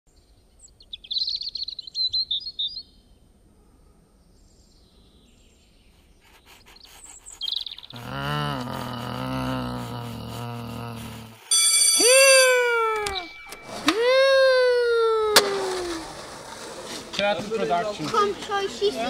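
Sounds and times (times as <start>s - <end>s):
songbirds chirping: 0.1s - 9.8s
electric school bell ringing: 11.5s - 14.2s.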